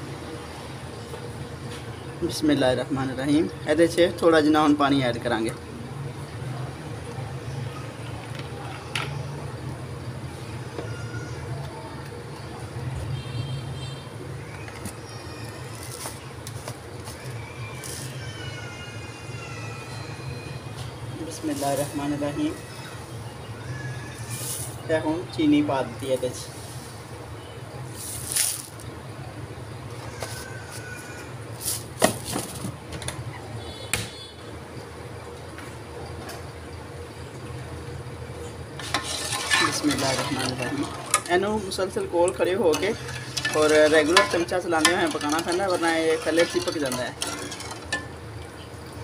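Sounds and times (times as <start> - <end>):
sugar pouring into a pot: 38.8 - 48.0.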